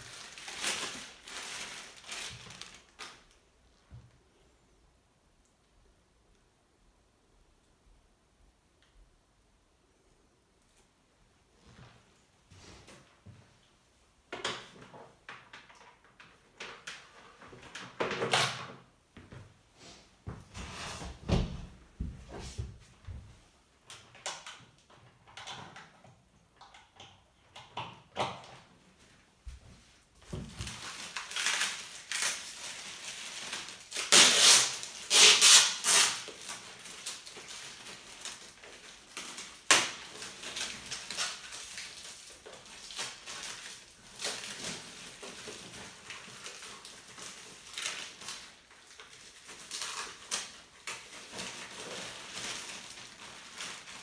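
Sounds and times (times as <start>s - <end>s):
packaging rustling and crinkling: 0.0s - 3.4s, 29.6s - 54.0s.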